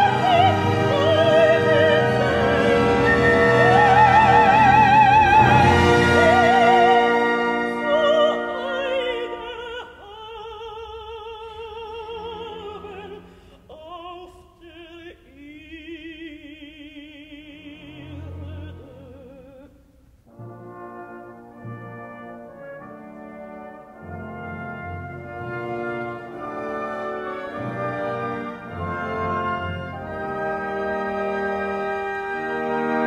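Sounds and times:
brass chord: 0.0s - 9.7s, 20.3s - 33.0s
orchestra sustained chords: 0.0s - 9.8s
soprano singing with vibrato: 0.0s - 19.8s.

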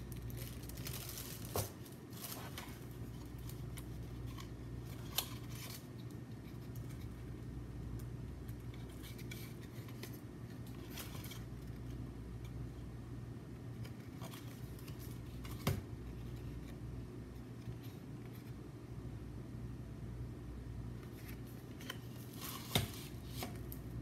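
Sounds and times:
paper rustling: 0.0s - 7.4s
steady low hum: 0.0s - 24.0s.

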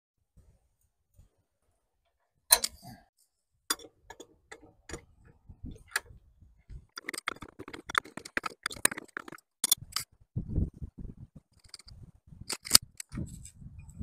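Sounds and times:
small clicks: 11.5s - 13.6s.

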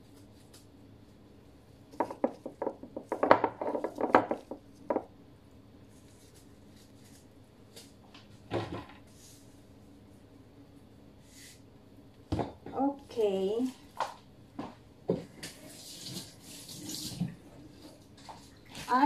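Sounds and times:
hands rubbing raw chicken: 5.8s - 8.0s.

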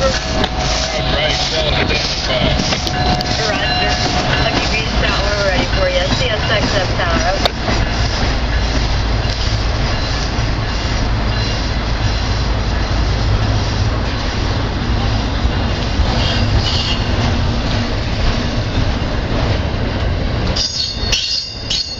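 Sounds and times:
train wheels rumbling on rails: 0.0s - 21.9s
wheel squeal: 16.2s - 17.1s.

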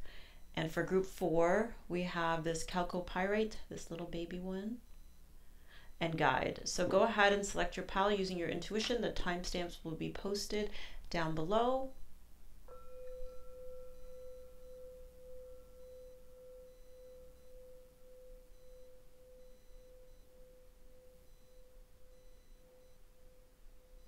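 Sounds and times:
struck bell-like tone: 11.5s - 24.0s.

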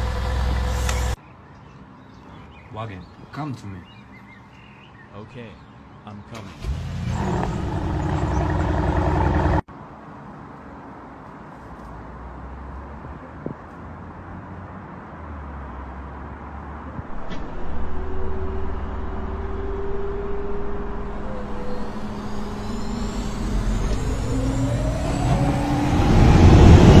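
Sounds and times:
sports car engine rumble: 7.1s - 9.7s, 17.1s - 27.0s
rising engine whine: 17.1s - 27.0s.

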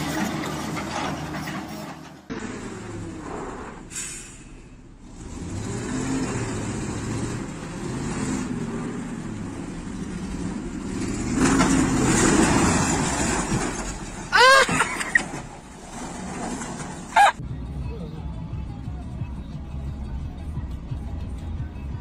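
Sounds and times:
truck engine revving: 0.0s - 17.4s.

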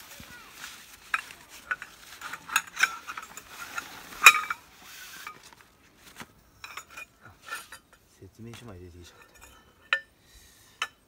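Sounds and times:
pole sections clinking together: 1.0s - 4.6s, 6.6s - 10.1s.

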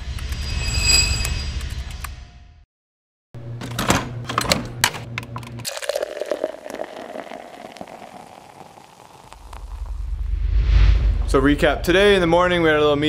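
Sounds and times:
coffee maker pump humming: 5.1s - 9.8s
coffee pouring into mug: 5.6s - 10.0s.

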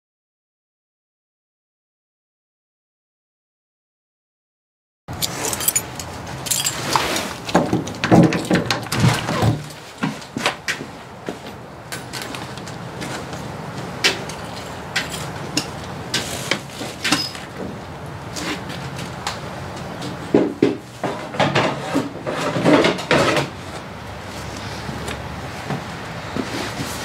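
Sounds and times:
hard objects knocking and clattering: 5.1s - 10.5s
bangs and scrapes: 20.4s - 23.6s.

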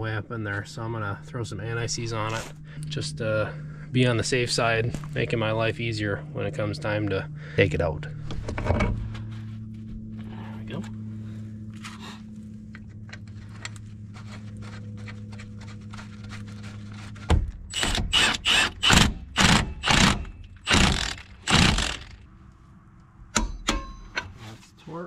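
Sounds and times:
low hum with faint ticking: 0.0s - 25.0s
impact wrench hammering: 17.7s - 22.2s, 23.3s - 24.3s.

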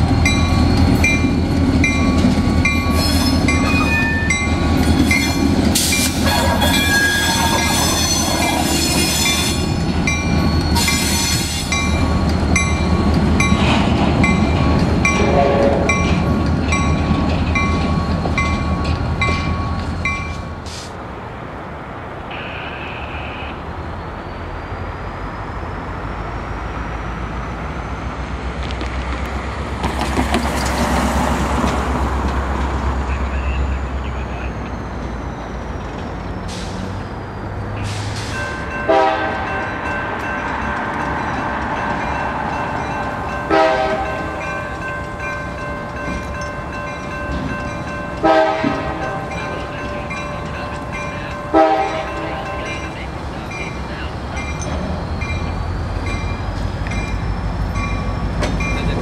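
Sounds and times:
grade crossing bells ringing: 0.0s - 20.6s, 37.7s - 59.0s
diesel locomotive engine running: 0.0s - 59.0s.

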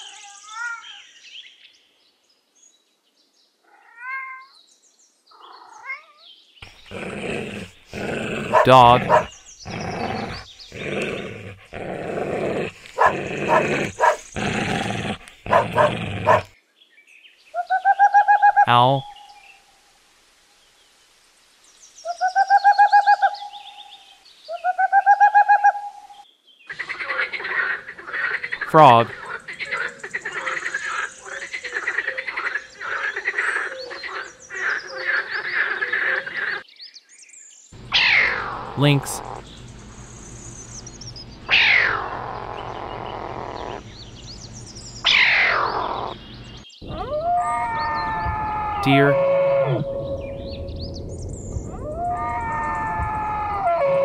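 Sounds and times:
frogs croaking: 6.6s - 16.5s, 26.7s - 36.6s, 37.8s - 47.0s
dog growling: 6.6s - 16.6s, 41.8s - 43.9s
dog barking: 8.5s - 9.3s, 13.0s - 14.3s, 15.5s - 16.5s.

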